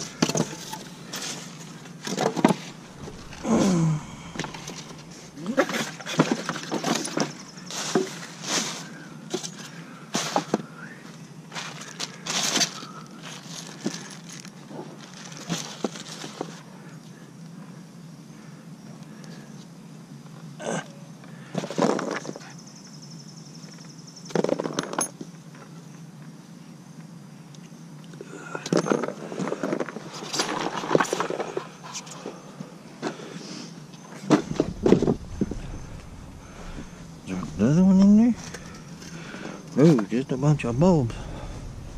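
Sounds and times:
steady low hum: 0:00.0 - 0:07.7, 0:34.0 - 0:41.9
junk knocking and clattering: 0:34.3 - 0:39.1.

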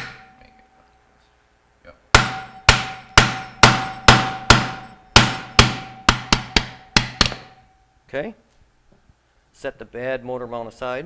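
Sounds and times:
faint metallic ringing tone: 0:00.0 - 0:01.3, 0:02.3 - 0:08.1
hammer striking metal screwdriver: 0:02.2 - 0:07.7.

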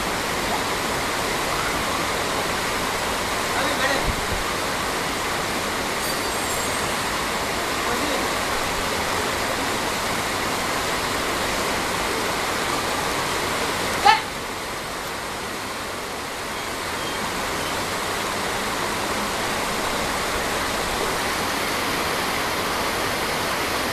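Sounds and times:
river flowing over rocks: 0:00.0 - 0:23.9
high-pitched call: 0:06.0 - 0:08.5.

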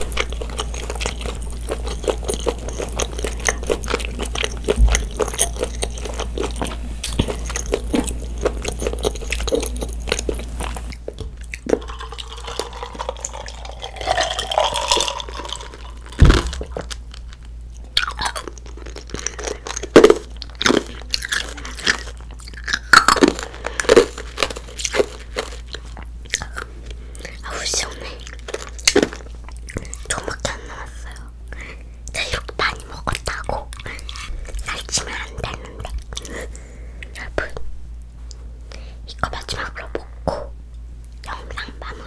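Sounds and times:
child chewing with wet mouth sounds: 0:00.0 - 0:42.0
sharp knock: 0:16.2 - 0:16.7.

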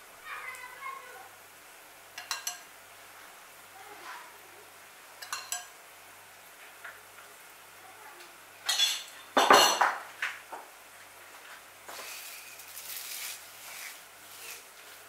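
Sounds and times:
kitchen utensils and dishes clinking: 0:02.2 - 0:02.7, 0:05.2 - 0:05.8, 0:08.6 - 0:10.1.

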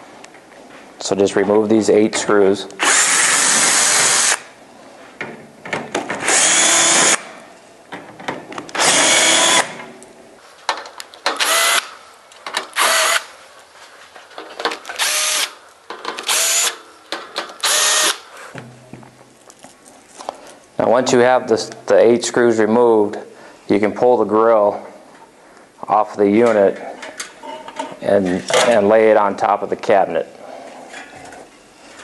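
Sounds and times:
cordless drill backing out screws: 0:14.6 - 0:18.2.

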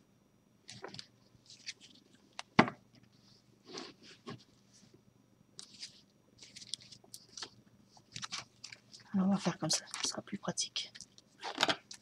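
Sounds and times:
cards rustling and sliding: 0:05.6 - 0:09.0.

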